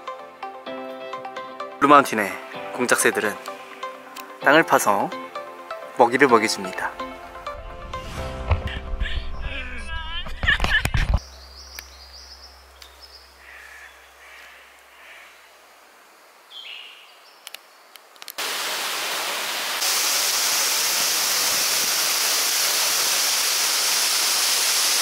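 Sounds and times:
short bird calls: 11.3s - 15.5s
waterfall rushing: 18.4s - 25.0s.

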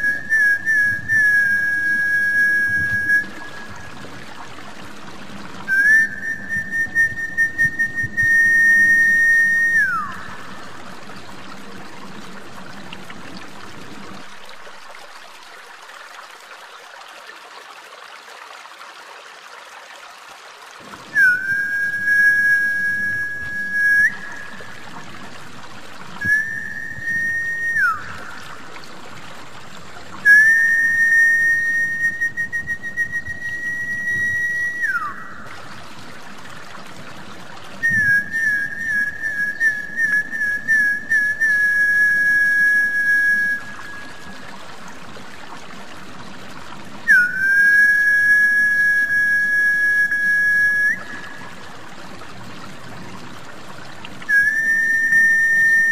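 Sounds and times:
long high whistles: 0.0s - 4.0s, 5.6s - 10.6s, 21.1s - 24.8s, 26.2s - 28.6s, 30.2s - 35.6s, 37.8s - 44.4s, 47.0s - 51.6s, 54.3s - 55.9s
water trickling: 0.0s - 55.9s.

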